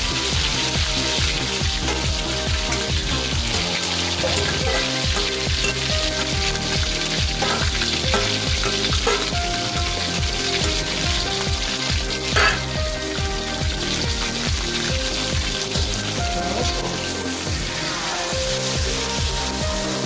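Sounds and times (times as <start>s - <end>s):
meat sizzling in hot oil: 0.0s - 20.0s
metal spatula scraping wok: 1.0s - 13.2s.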